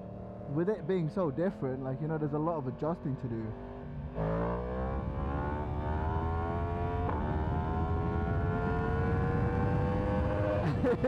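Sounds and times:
motorcycle engine accelerating: 0.0s - 1.8s, 2.7s - 11.0s
wind noise on microphone: 7.3s - 11.0s.

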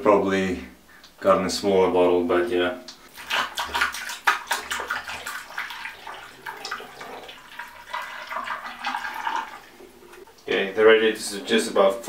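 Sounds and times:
water pouring through funnel: 3.1s - 10.5s.

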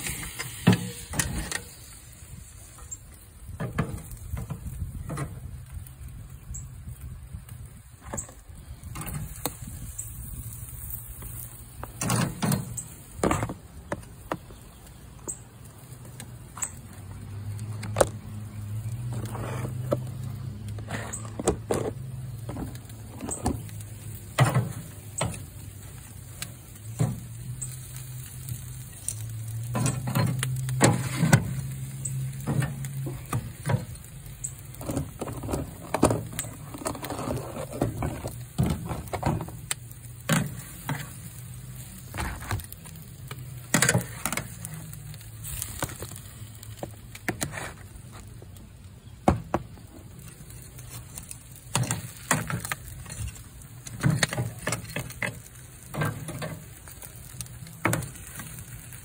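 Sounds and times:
metal tongs clacking on a grate: 29.0s - 33.8s.

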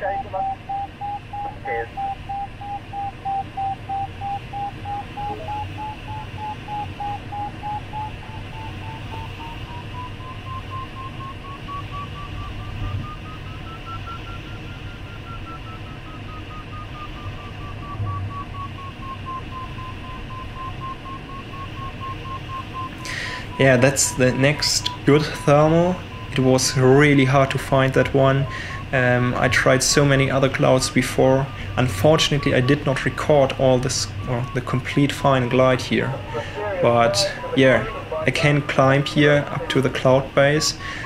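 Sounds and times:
variometer beeping: 0.0s - 41.0s
cockpit airflow hiss: 35.5s - 39.0s.

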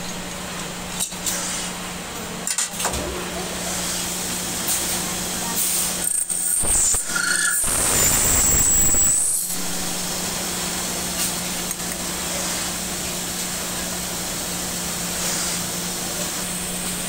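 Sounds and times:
machine humming: 3.0s - 17.0s
steady hiss: 7.6s - 17.0s.

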